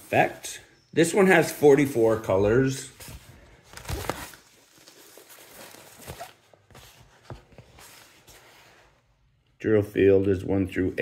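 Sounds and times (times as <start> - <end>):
plastic film rustling and crinkling: 3.0 - 8.4.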